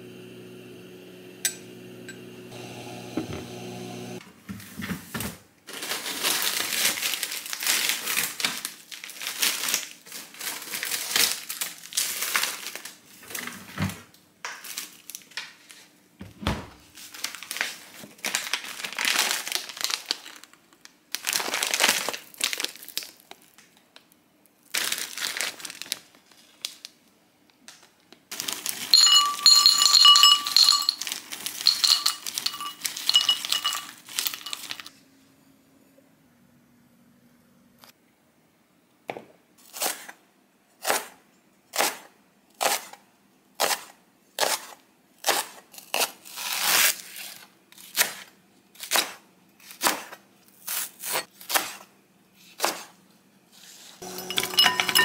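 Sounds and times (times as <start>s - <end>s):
plastic bag crinkling: 5.7s - 13.4s, 16.9s - 23.6s, 24.6s - 27.0s, 28.3s - 34.9s
pieces clattering into ceramic bowl: 28.4s - 34.9s, 54.0s - 55.0s.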